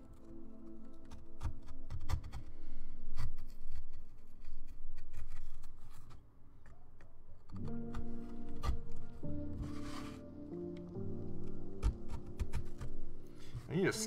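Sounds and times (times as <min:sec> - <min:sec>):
background music: 0:00.0 - 0:03.5, 0:07.5 - 0:14.0
carving gouge scraping wood: 0:01.1 - 0:06.2, 0:07.5 - 0:10.2, 0:11.4 - 0:13.7.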